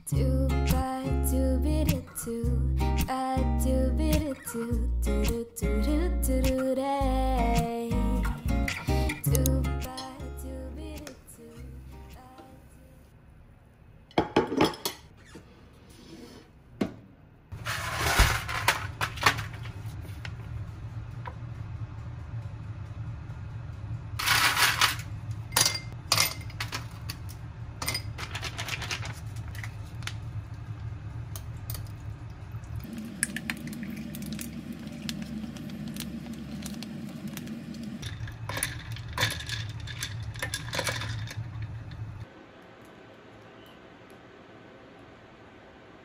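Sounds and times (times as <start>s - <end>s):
steady low hum: 18.4s - 28.3s
ice cubes clinking: 27.8s - 29.2s, 37.7s - 41.7s
coffee pouring over ice: 32.8s - 41.7s.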